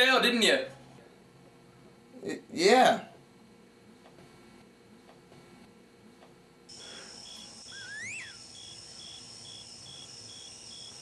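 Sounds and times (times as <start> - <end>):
steady high synthesizer tone: 6.8 - 8.6
rising and falling whistling glide: 7.6 - 8.5.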